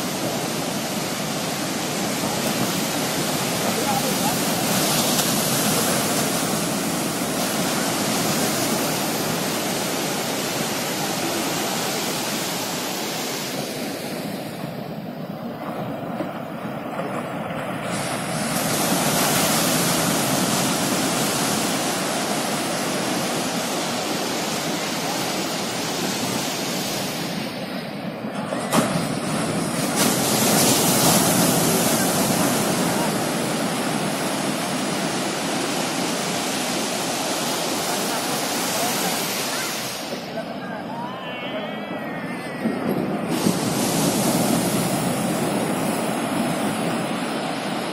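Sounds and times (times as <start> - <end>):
ocean surf washing on beach: 0.0 - 47.9.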